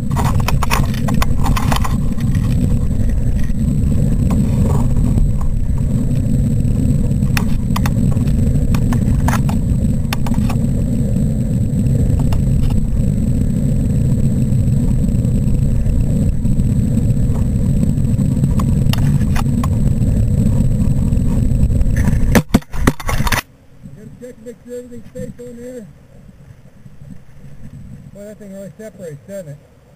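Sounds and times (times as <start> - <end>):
sharp clicks: 0.0 - 10.8
wind rushing over microphone: 0.0 - 29.0.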